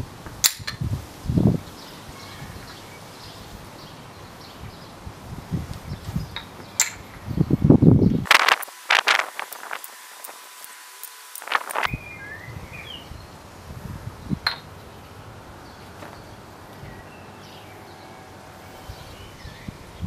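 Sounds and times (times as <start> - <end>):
wooden ball clacking on wood: 6.3 - 7.0, 14.4 - 14.7
birds chirping faintly: 9.4 - 20.0.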